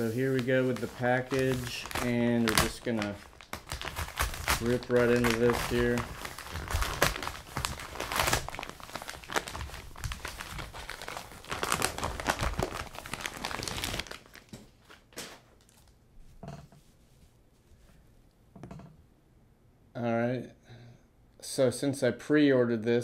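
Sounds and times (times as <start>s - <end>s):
paper mailer ripping: 0.0s - 15.4s
rustles and knocks: 16.2s - 19.0s.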